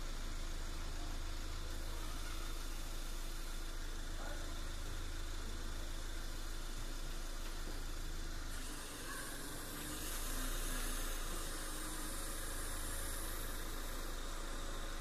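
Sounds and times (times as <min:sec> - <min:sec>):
low machine hum: 0:00.0 - 0:15.0
high hiss: 0:08.6 - 0:15.0.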